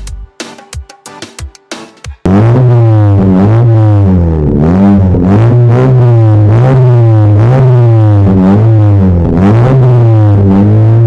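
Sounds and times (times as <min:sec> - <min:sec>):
electronic music with heavy bass: 0:00.0 - 0:11.0
car engine revving: 0:02.3 - 0:11.0.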